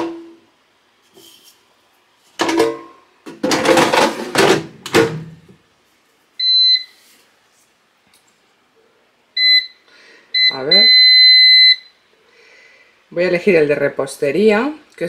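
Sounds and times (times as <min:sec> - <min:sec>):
plastic basket clattering and scraping: 0:02.3 - 0:05.3.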